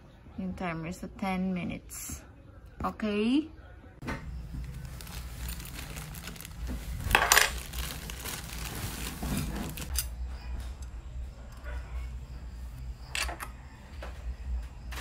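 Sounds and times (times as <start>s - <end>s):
metal fittings clinking in plastic bag: 4.6s - 10.1s.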